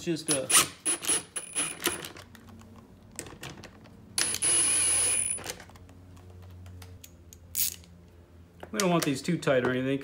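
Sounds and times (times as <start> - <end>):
tools clicking: 6.8 - 8.0.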